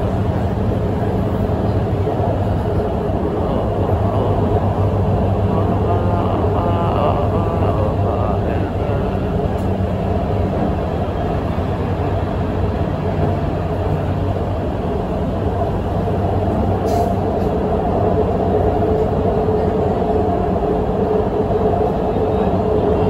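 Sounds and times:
train rumbling: 0.0s - 23.0s.

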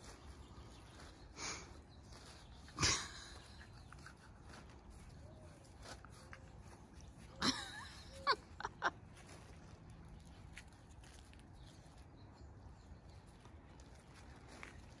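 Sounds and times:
puppies playing with plastic bag: 8.4s - 15.0s.

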